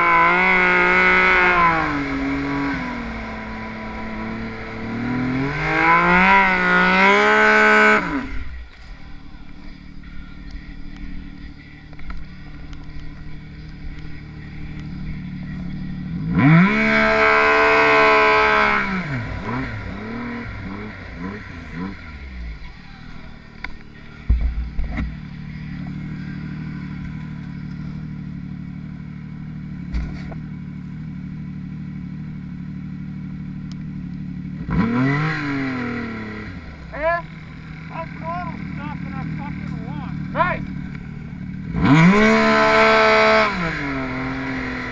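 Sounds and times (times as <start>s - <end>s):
snowmobile engine revving: 0.0s - 8.6s, 14.8s - 31.9s, 34.4s - 44.9s.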